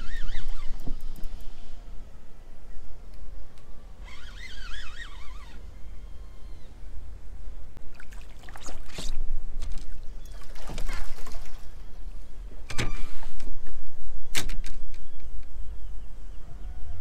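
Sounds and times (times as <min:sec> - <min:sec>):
fishing reel cranking: 0:04.0 - 0:05.6
water splashes: 0:07.8 - 0:11.8.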